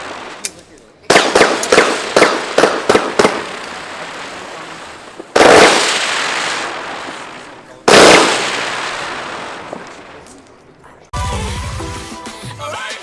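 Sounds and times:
loud firework shots: 0.0s - 10.3s
fireworks bangs: 0.0s - 10.8s.

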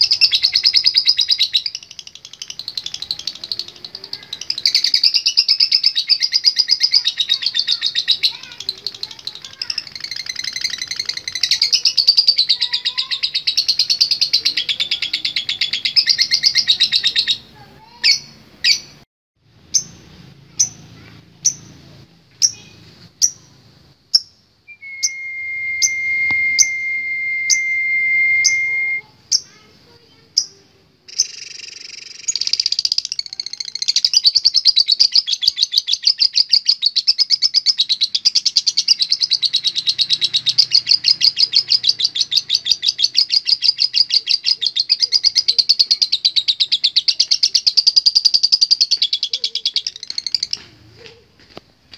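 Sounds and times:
bird chattering trill: 0.0s - 19.0s, 27.5s - 50.6s
bird high chirps: 0.0s - 19.0s, 19.7s - 50.6s
high whistle-like tone: 24.7s - 29.1s.

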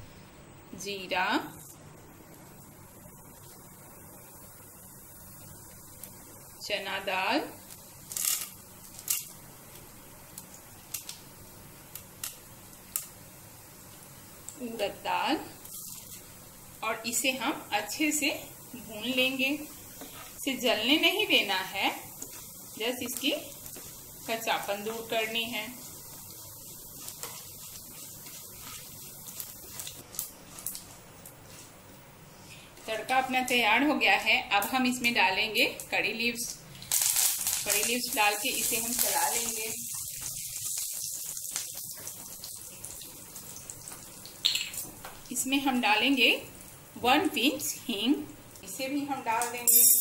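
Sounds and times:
faint steady hum: 0.0s - 50.0s
seeds popping in hot oil: 1.6s - 17.3s, 18.0s - 31.7s, 34.6s - 35.1s, 35.7s - 45.5s
sharp crackles: 7.6s - 9.4s, 36.8s - 42.1s.

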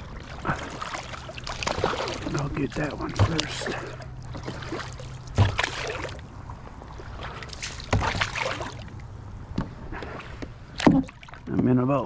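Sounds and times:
paddle sloshing through water: 0.0s - 11.5s.

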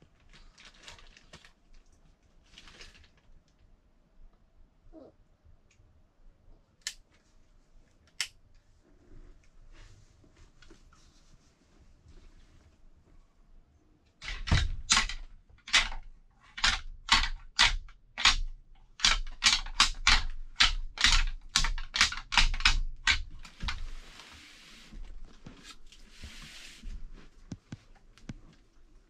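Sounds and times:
antlers clacking together: 14.2s - 23.3s.

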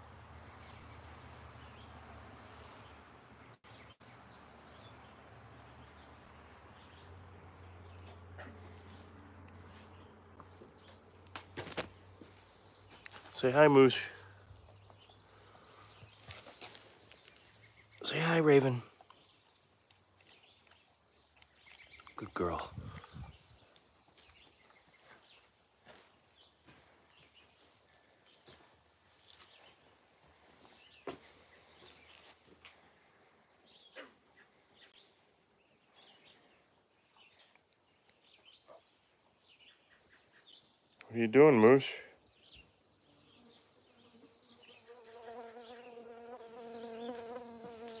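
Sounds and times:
distant bird chirps: 0.0s - 48.0s
insect buzzing: 43.1s - 48.0s.

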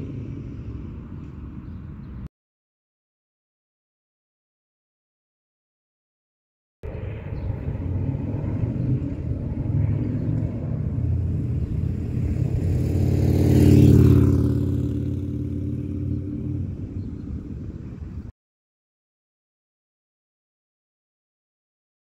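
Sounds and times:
motorcycle riding by: 6.9s - 18.1s.

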